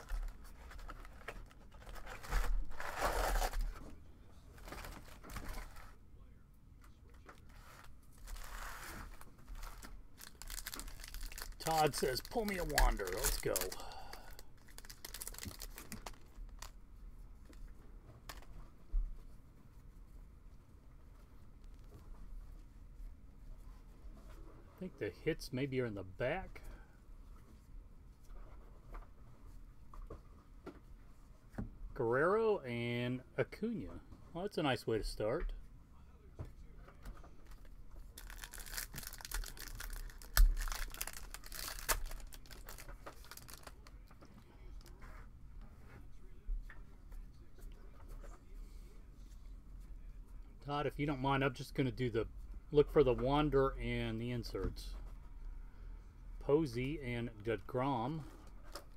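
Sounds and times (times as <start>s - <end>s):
cards being handled: 7.4s - 16.8s, 37.5s - 44.1s
foil wrapper crinkling and tearing: 8.1s - 16.7s, 38.2s - 43.9s.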